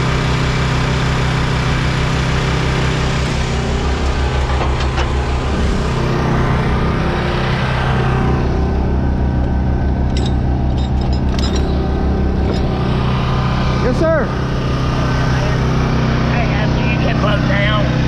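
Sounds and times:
diesel truck engine idling: 0.0 - 18.0
metal chains clinking: 10.0 - 13.1.

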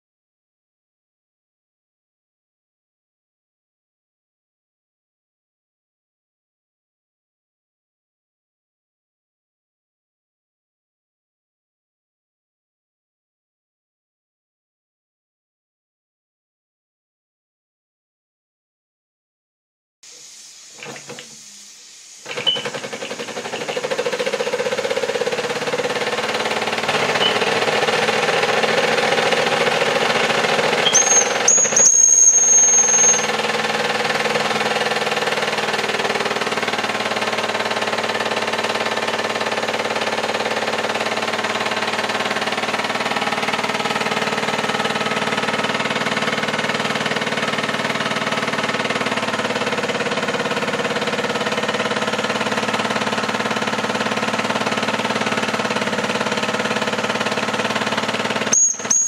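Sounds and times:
steam engine chuffing: 20.1 - 59.0
steam whistle: 30.8 - 33.5.

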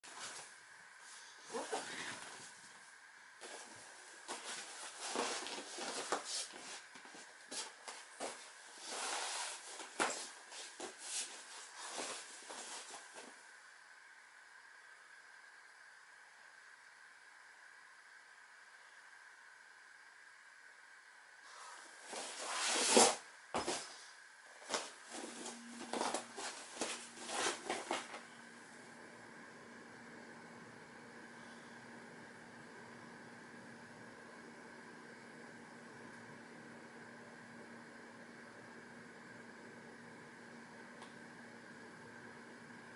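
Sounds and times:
rustles and scuffs on vinyl mat: 0.0 - 0.5, 1.1 - 2.8, 3.4 - 13.4, 21.5 - 28.4.

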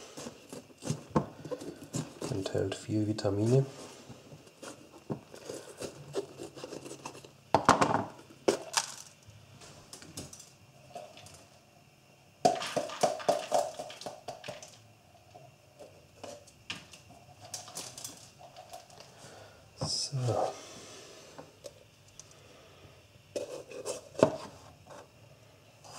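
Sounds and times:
tearing and rustling: 4.5 - 7.3
kitchen knocks and clatter: 7.5 - 8.9, 12.5 - 14.8.

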